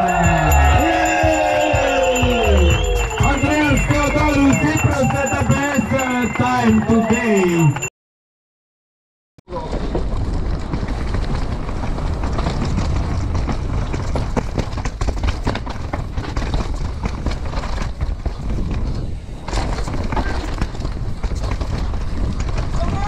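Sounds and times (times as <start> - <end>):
bike rattling and clattering: 9.5 - 23.0.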